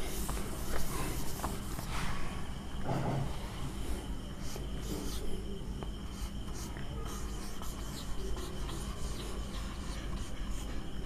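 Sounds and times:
steady low hum: 0.0s - 11.0s
marker squeaking on whiteboard: 6.0s - 10.9s.

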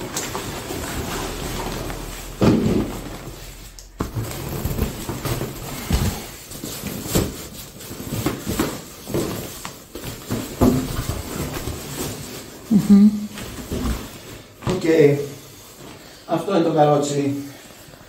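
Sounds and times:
knocks and thumps of handling: 0.0s - 12.4s
fabric rustle: 0.0s - 18.0s.

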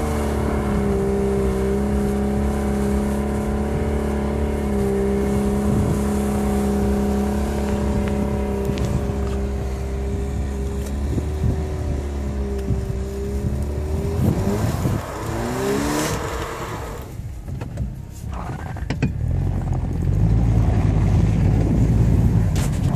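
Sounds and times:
car engine revving hard: 0.0s - 17.1s
wheels spinning in snow: 0.0s - 22.9s.

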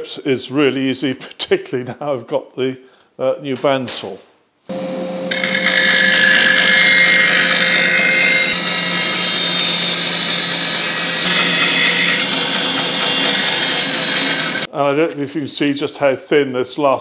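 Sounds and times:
bandsaw motor hum: 4.7s - 14.7s
saw blade cutting wood: 4.7s - 14.7s.

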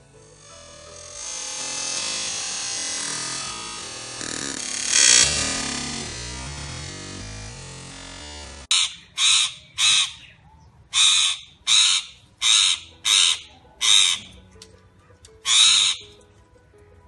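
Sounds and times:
parrot squawking: 8.7s - 14.3s, 15.4s - 16.0s.

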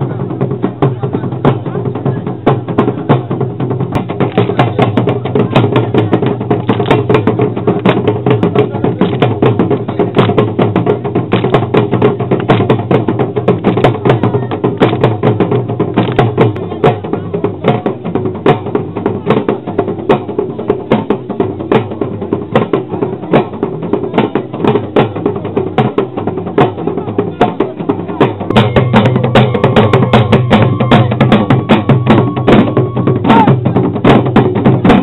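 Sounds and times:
sharp clicking percussion: 2.7s - 20.3s, 24.1s - 35.0s
pitched instrument: 28.4s - 33.6s.

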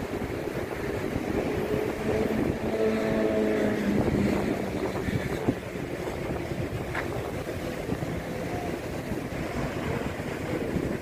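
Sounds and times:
passing vehicle engine hum: 0.0s - 11.0s
road traffic: 0.0s - 11.0s
sea surf breaking: 0.0s - 11.0s
wind buffeting microphone: 0.0s - 11.0s.

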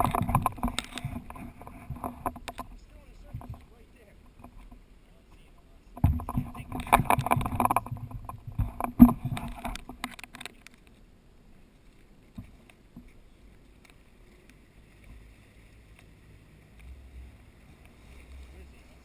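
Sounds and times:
water splashing against camera housing: 0.0s - 10.9s
sharp knocks: 6.0s - 10.2s.

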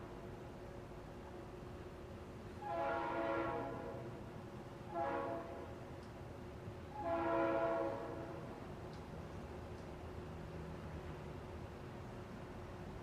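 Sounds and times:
train horn blasts: 2.6s - 5.8s, 6.9s - 8.6s.

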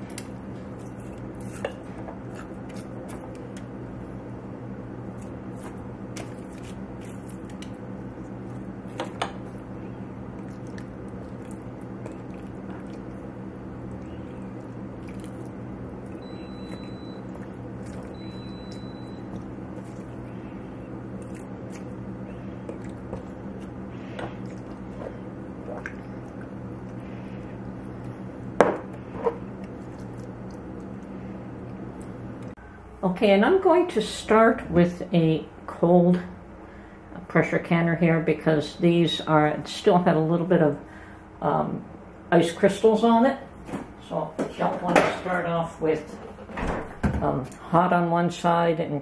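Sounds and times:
roasted peppers squishing: 0.0s - 3.8s, 5.0s - 32.5s
steady low hum: 0.0s - 49.0s.

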